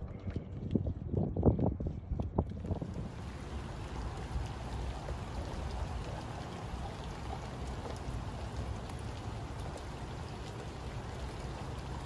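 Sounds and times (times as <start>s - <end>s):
low steady rumble: 0.0s - 12.0s
rain falling on water: 2.5s - 12.0s.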